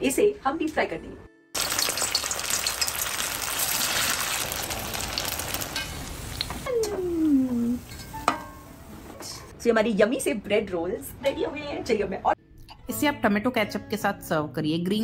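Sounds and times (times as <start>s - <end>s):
oil sizzling and bubbling: 1.6s - 9.2s.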